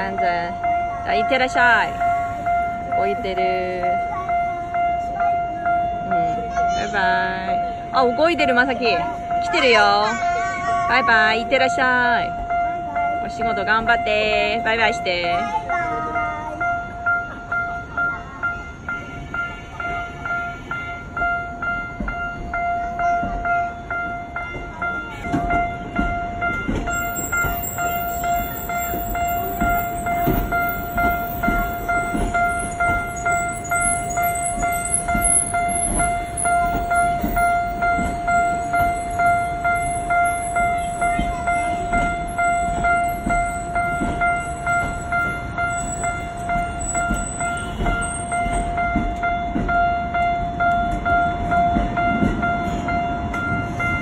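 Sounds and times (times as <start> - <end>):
level crossing bell clanging: 0.0 - 54.0
train wheels knocking: 24.5 - 53.5.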